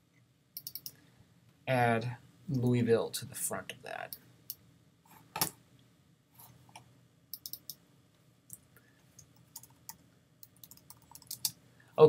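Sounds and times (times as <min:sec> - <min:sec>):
keyboard and mouse clicks: 0:00.6 - 0:01.0, 0:07.4 - 0:07.8, 0:09.2 - 0:11.5.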